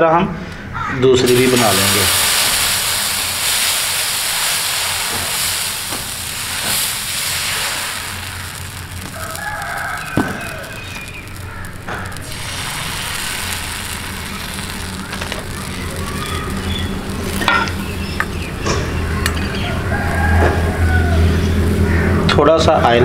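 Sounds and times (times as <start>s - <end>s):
batter sizzling on hot iron: 1.2s - 20.8s
rooster crowing: 7.8s - 12.2s, 19.4s - 22.3s.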